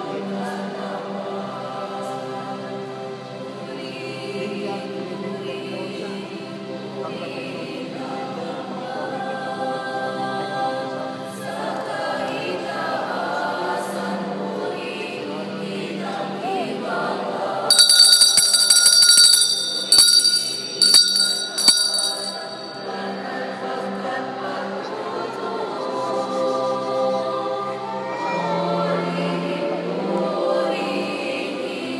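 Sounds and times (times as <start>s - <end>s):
choir-like singing: 0.0s - 17.7s, 22.9s - 31.9s
high metallic bell ringing: 17.7s - 23.2s.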